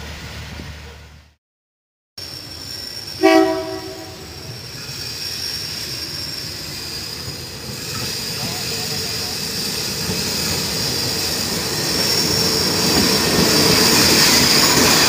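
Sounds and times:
train rumbling: 0.0s - 1.4s, 2.2s - 15.0s
train horn blast: 3.2s - 4.4s.

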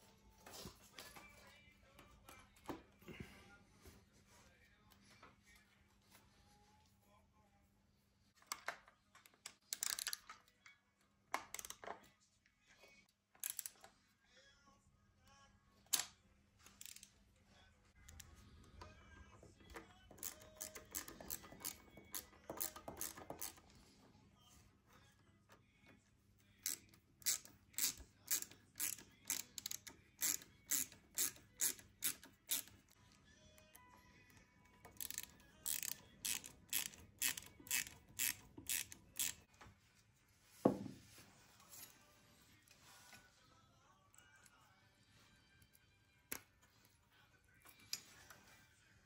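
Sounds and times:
screwdriver clicking and scraping metal: 8.4s - 10.5s, 13.4s - 13.9s, 15.9s - 17.1s, 18.0s - 23.7s, 26.6s - 33.0s, 34.6s - 39.5s.

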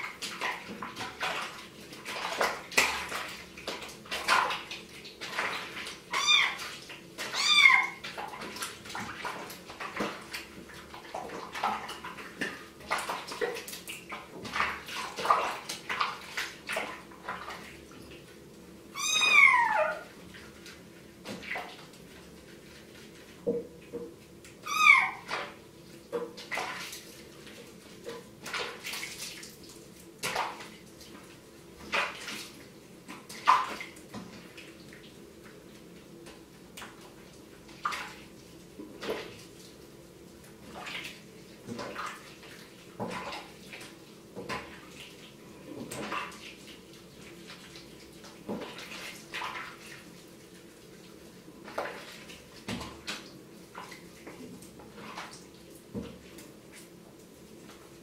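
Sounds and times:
water splashing in a sink: 0.0s - 58.0s.

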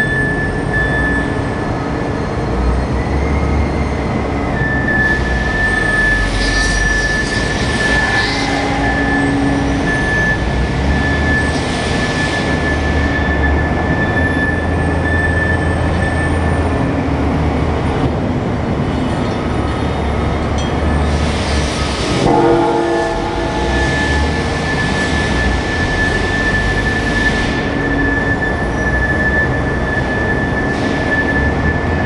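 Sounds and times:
forklift engine drone: 0.0s - 32.0s
loud machine noise: 0.0s - 32.0s
high whine: 4.6s - 15.8s, 20.5s - 31.9s.

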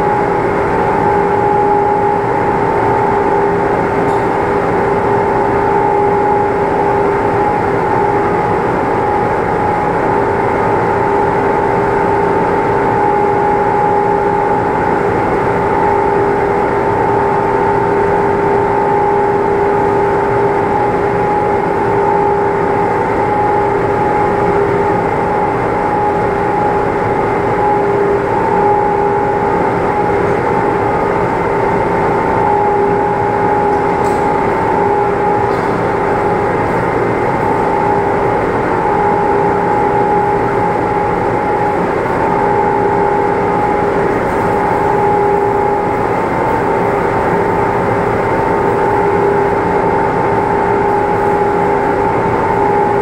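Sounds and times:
machine humming and rumbling: 0.0s - 53.0s.

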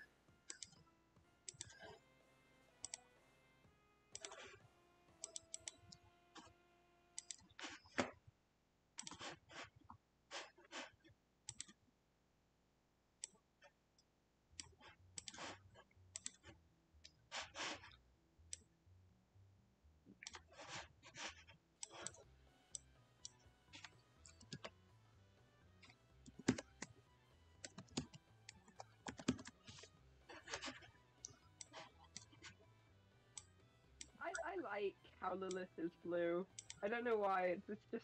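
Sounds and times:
computer keyboard typing: 0.4s - 2.0s, 5.2s - 6.0s, 9.0s - 9.4s, 25.8s - 26.9s, 27.6s - 32.6s
mouse clicks: 0.5s - 0.8s, 2.8s - 3.0s, 5.2s - 6.5s, 7.2s - 8.1s, 9.0s - 9.4s, 11.5s - 11.8s.

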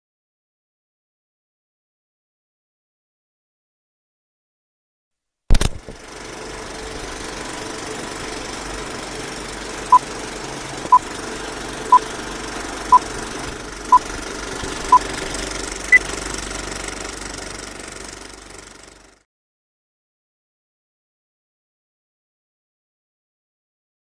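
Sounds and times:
mechanical rattling hum: 5.5s - 19.2s.

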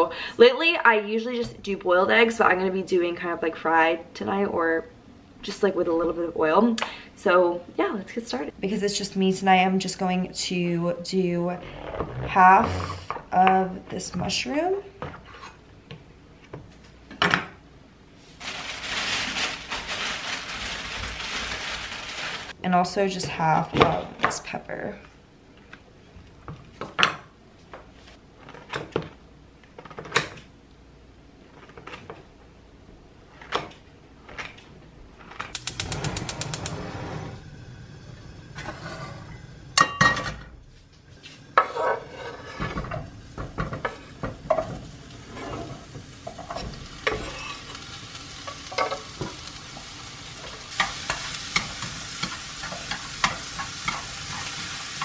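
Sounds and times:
vegetables sizzling in oil: 18.4s - 22.6s, 41.6s - 55.0s.

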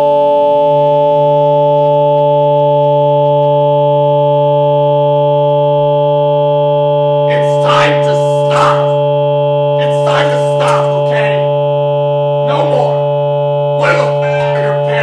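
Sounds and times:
sustained synthetic drone: 4.4s - 15.0s.

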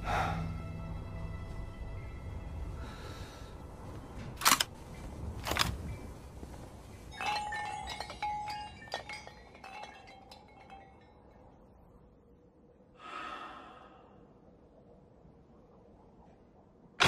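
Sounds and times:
music: 0.0s - 4.4s
glass bottles clinking: 7.1s - 11.7s.

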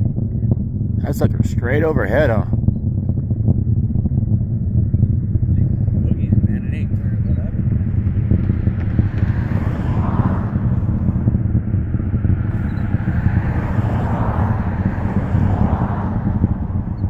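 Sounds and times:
distant rocket engine rumble: 0.0s - 17.0s.

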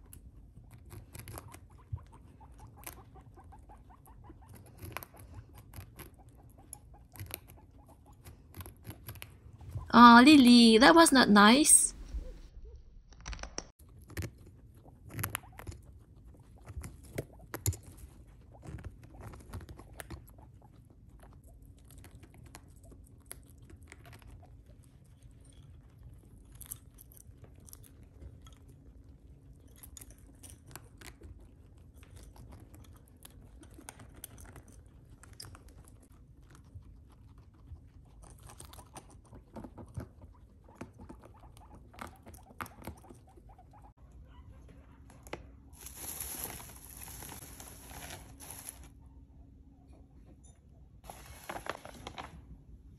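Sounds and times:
guinea pigs chewing: 0.0s - 10.5s, 13.2s - 52.9s
scrabbling on fleece: 45.8s - 49.0s.

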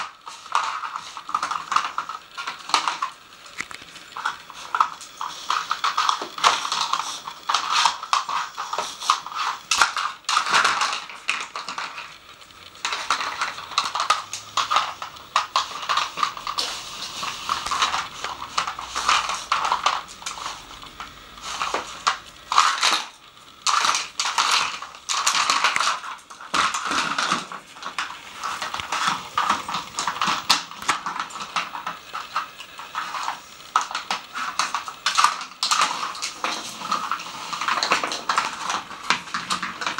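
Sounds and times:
plastic lids clattering: 23.7s - 39.9s.

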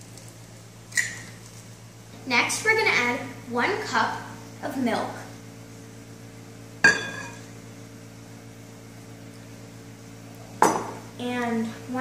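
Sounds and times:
steady low hum: 0.0s - 12.0s
cup clinking glass bowl: 6.8s - 7.5s, 10.6s - 11.0s.

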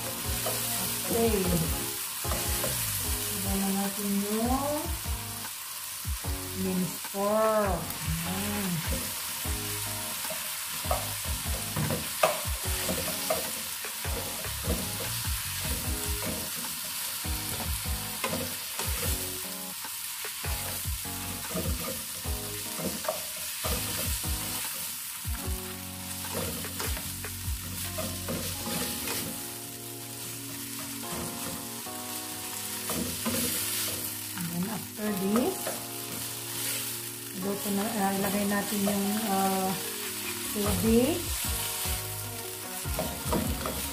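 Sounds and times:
meat sizzling in a pan: 0.0s - 43.9s
spatula scraping and knocking pan: 0.1s - 3.0s, 10.3s - 16.8s, 21.4s - 24.8s, 26.2s - 29.4s, 30.7s - 31.6s, 32.8s - 34.5s, 42.9s - 43.9s.

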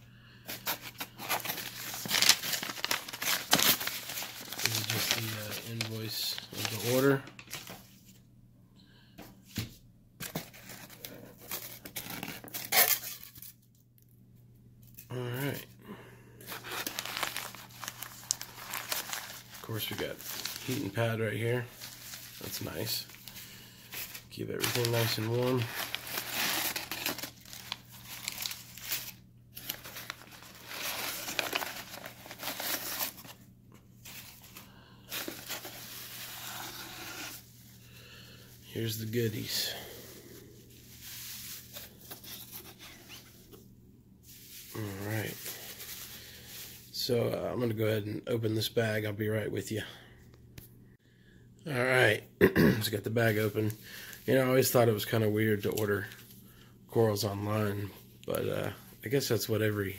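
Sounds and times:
newspaper rustling and crinkling: 0.5s - 8.2s, 16.5s - 33.4s, 34.0s - 37.7s, 38.8s - 43.6s, 44.3s - 46.9s.

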